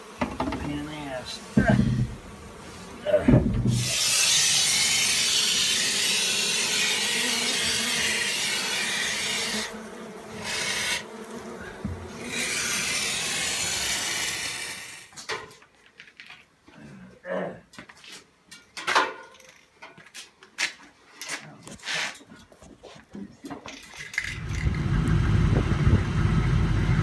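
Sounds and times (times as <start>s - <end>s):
bees buzzing: 0.0s - 15.1s
spray foam can hissing: 3.7s - 9.7s, 12.2s - 15.1s.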